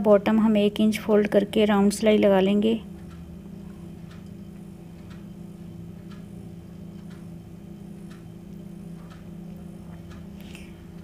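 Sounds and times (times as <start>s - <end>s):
steady low hum: 0.0s - 11.0s
faint regular tick: 4.0s - 5.3s, 6.0s - 6.3s, 6.9s - 7.3s, 8.1s - 11.0s.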